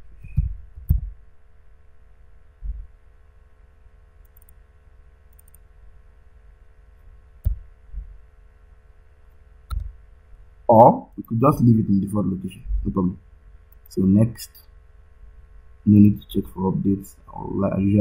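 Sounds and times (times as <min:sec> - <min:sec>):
electrical hum: 0:00.0 - 0:18.0
mouse and keyboard clicks: 0:05.3 - 0:05.6, 0:09.7 - 0:10.0.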